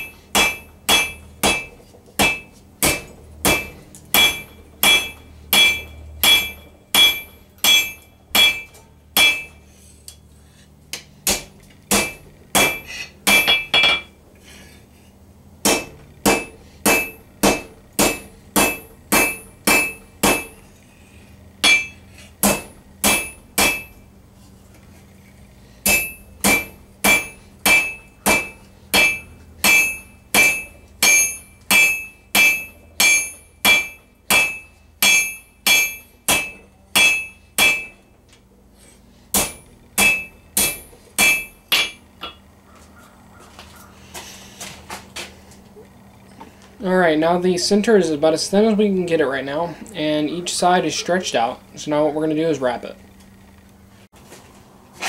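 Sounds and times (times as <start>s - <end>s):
hammer striking metal on anvil: 0.0s - 9.6s, 10.9s - 14.2s, 15.6s - 20.6s, 21.6s - 24.0s, 25.8s - 38.2s, 39.3s - 42.4s.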